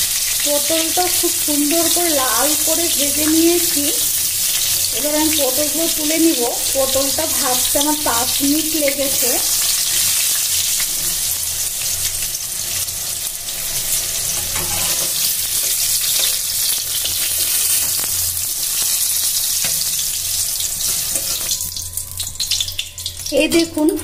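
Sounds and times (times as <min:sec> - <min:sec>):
food sizzling in hot oil: 0:00.0 - 0:24.0
metal spatula scraping pan: 0:13.8 - 0:17.9, 0:19.6 - 0:21.7.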